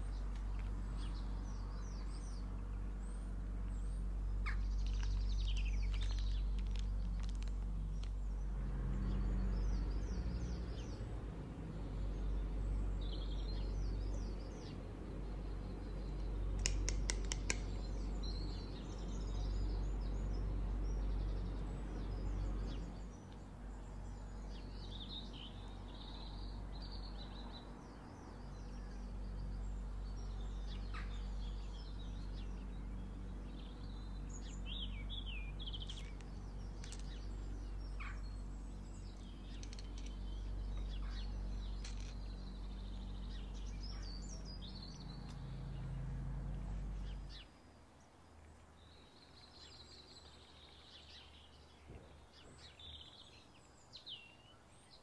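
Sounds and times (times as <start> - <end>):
birds chirping: 0.0 - 55.0
low background hum: 0.0 - 55.0
sharp clicks: 16.2 - 18.0.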